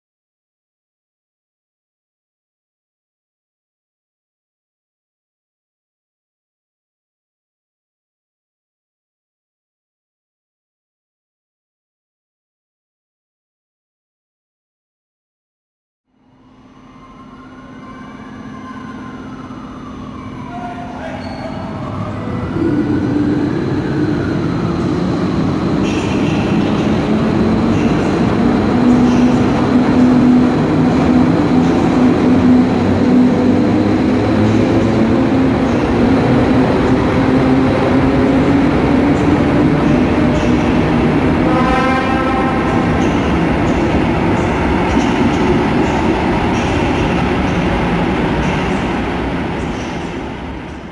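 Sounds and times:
electric locomotive passing: 0:16.1 - 0:50.9
train rolling rumble: 0:17.2 - 0:50.9.

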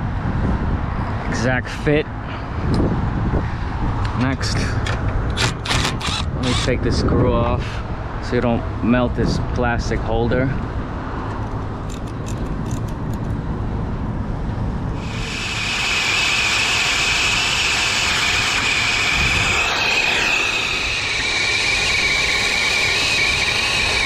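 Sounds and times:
torch flame hissing: 0:15.0 - 0:24.0.

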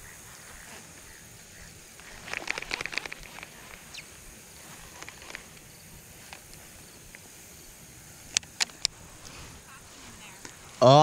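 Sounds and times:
faint outdoor background: 0:00.0 - 0:11.0
fishing reel clicks: 0:02.0 - 0:04.1, 0:04.8 - 0:07.2.

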